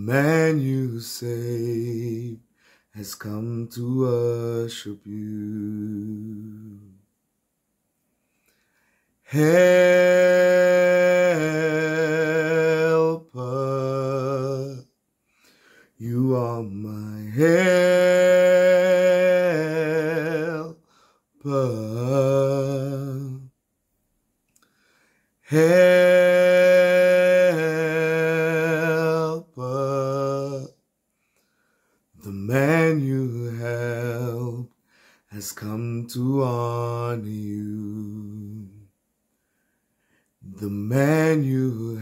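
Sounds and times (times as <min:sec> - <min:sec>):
man singing unaccompanied: 0:00.0 - 0:07.0, 0:09.2 - 0:15.0, 0:15.9 - 0:23.6, 0:25.4 - 0:30.8, 0:32.2 - 0:38.9, 0:40.4 - 0:42.0
breath: 0:02.5 - 0:03.0, 0:08.2 - 0:09.2, 0:15.2 - 0:16.0, 0:20.8 - 0:21.3, 0:24.6 - 0:25.4, 0:31.1 - 0:32.1, 0:34.8 - 0:35.3, 0:39.3 - 0:40.4.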